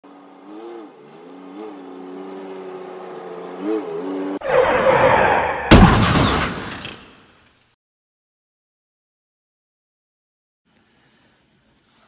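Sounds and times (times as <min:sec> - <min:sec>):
truck engine running: 0:00.0 - 0:04.4
sudden loud noise: 0:04.5 - 0:07.2.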